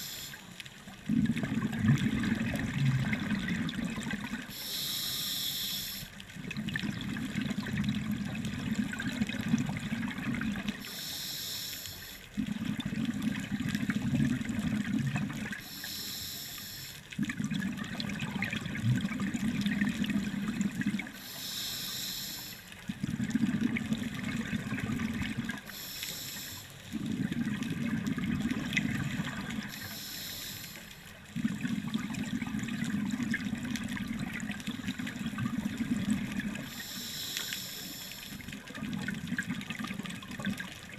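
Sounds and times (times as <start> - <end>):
regulator inhalation hiss: 0.0 - 0.5, 4.5 - 6.1, 10.8 - 12.2, 15.6 - 17.0, 21.2 - 22.7, 25.6 - 26.8, 29.7 - 31.0, 36.6 - 38.4
exhaled air bubbling: 0.0 - 40.9.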